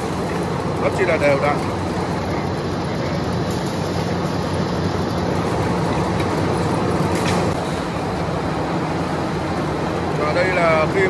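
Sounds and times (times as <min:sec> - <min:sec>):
machinery clatter: 0:00.0 - 0:08.1
wire-drawing machinery rumbling: 0:00.0 - 0:11.0.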